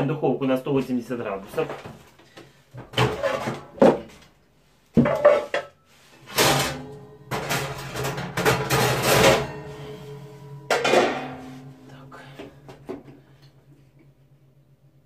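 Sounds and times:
oven door and racks clattering: 2.8s - 4.2s, 5.0s - 12.8s
oven humming: 6.1s - 15.0s.

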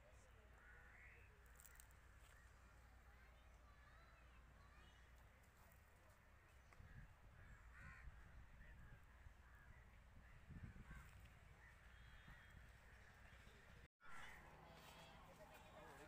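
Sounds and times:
faint crows cawing: 0.5s - 2.8s, 6.4s - 13.4s, 14.0s - 15.2s.

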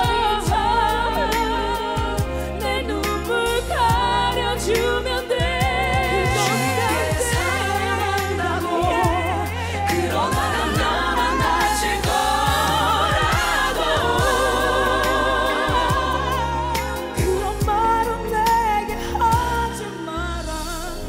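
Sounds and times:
bass and drums: 0.0s - 21.0s
women singing in harmony: 0.0s - 21.0s.

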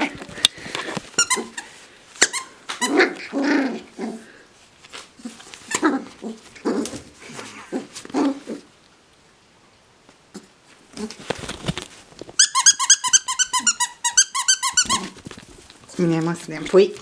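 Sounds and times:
squeaky toy squeaking: 1.2s - 1.6s, 2.2s - 3.2s, 12.4s - 15.2s
puppy play growls: 2.8s - 4.5s, 5.2s - 8.8s.

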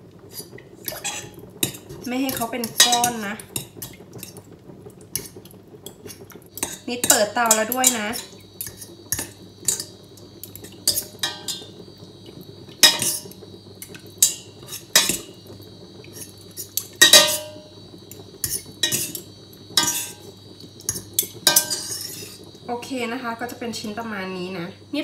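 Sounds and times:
fork and spoon clinking in metal pot: 20.9s - 22.3s.

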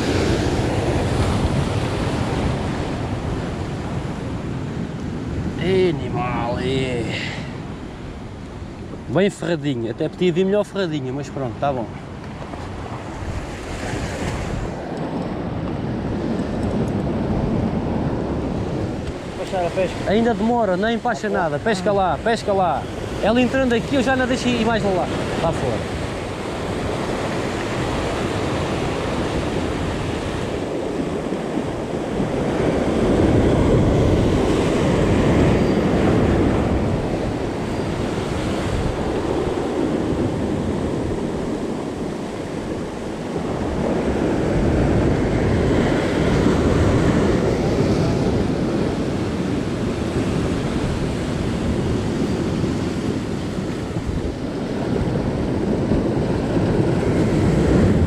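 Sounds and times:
wind on microphone: 0.0s - 9.2s, 11.8s - 58.0s
sea surf washing ashore: 0.0s - 58.0s.

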